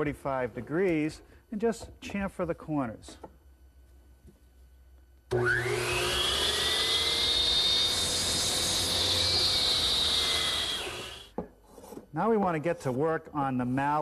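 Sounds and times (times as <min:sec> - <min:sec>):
miter saw motor whining: 0:05.3 - 0:11.3.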